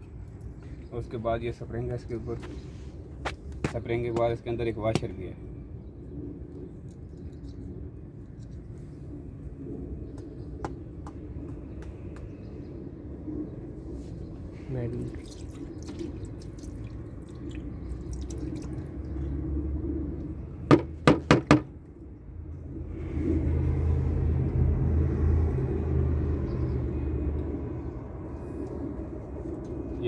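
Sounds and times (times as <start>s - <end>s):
steady low rumble: 0.0s - 30.0s
sharp knocks: 20.7s - 21.7s.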